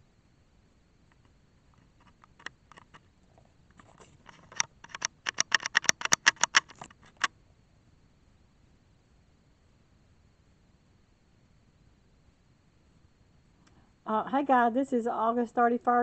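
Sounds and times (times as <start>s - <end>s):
handling clicks and crackles: 1.1s - 7.3s.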